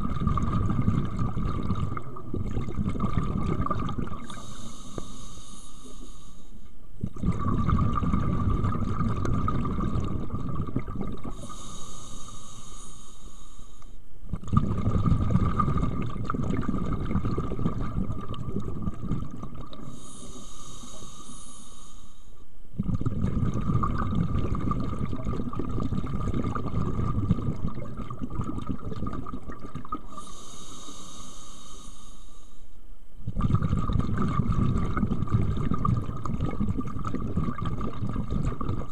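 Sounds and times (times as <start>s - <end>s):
low bubbling of exhaled air: 0.0s - 5.2s, 7.0s - 12.6s, 14.3s - 21.0s, 22.7s - 30.4s, 33.2s - 38.9s
regulator inhale hiss: 4.3s - 6.8s, 11.3s - 14.0s, 19.8s - 22.4s, 30.0s - 32.8s.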